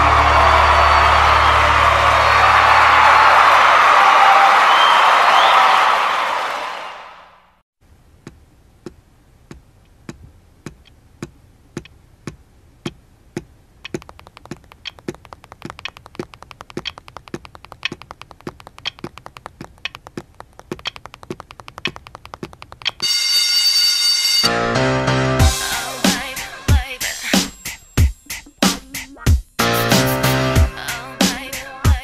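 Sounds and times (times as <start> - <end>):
sharp rhythmic clicks: 8.3 - 23.0
fast clicks: 8.8 - 23.0.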